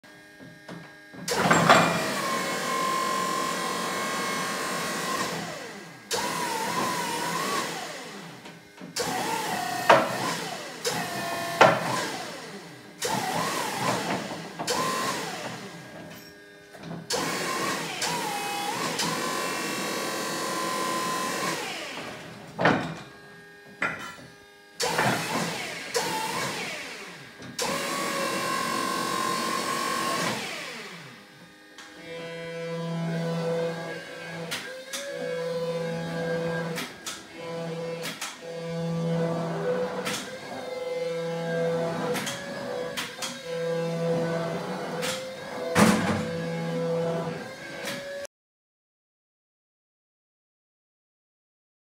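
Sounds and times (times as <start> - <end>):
hydraulic pump motor whining: 0.2 - 23.8, 24.5 - 48.2.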